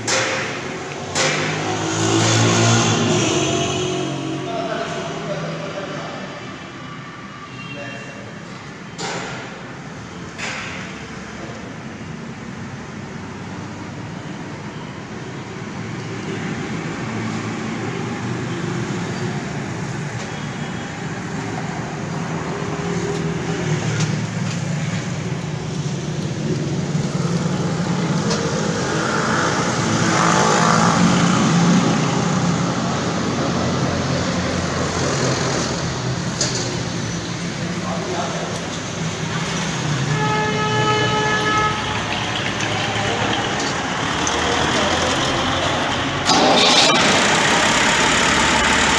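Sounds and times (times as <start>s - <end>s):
tractor diesel engine running: 41.9s - 48.9s.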